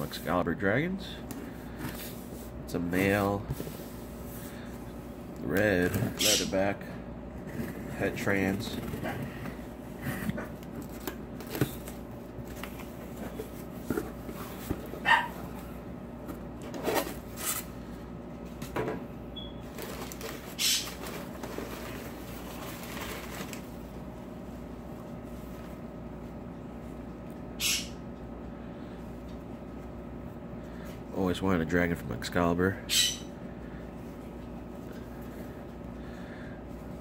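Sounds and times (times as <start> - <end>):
packing paper rustling: 19.6 - 23.9.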